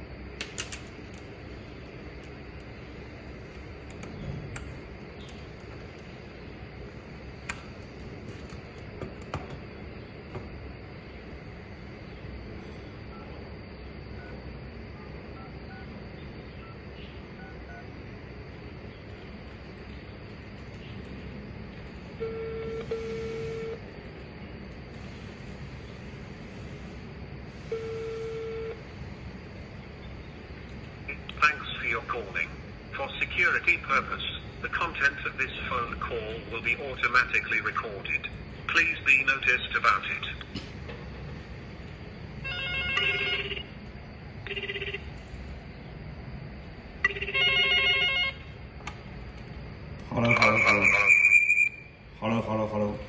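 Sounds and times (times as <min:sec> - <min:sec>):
telephone ringback tone: 0:22.2 - 0:23.8, 0:27.7 - 0:28.8, 0:42.4 - 0:43.7, 0:44.5 - 0:45.0, 0:47.0 - 0:48.4
recorded spoken warning: 0:31.1 - 0:40.5, 0:50.1 - 0:51.3, 0:52.2 - 0:53.0
telephone ringer warbling: 0:42.4 - 0:43.7, 0:47.0 - 0:48.4.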